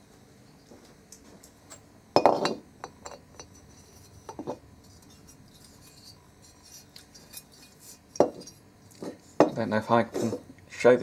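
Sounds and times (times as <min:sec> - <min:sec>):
metal part knocking on workbench: 0:02.2 - 0:03.2.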